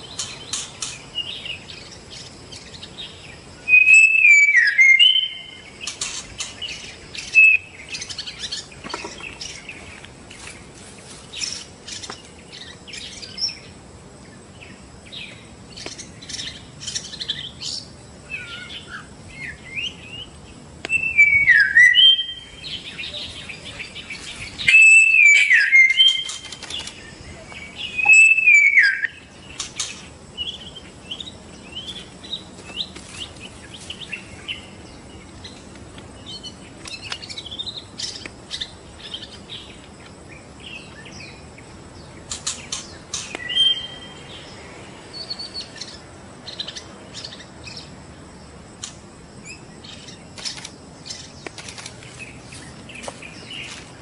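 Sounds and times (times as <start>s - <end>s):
bird chirping and whistling: 3.6s - 5.6s, 7.2s - 8.6s, 20.9s - 26.9s, 27.7s - 29.3s, 43.1s - 44.2s
loud downward-sliding bird whistles: 3.7s - 5.6s, 20.9s - 22.5s, 24.6s - 26.3s, 27.9s - 29.2s, 43.4s - 44.1s.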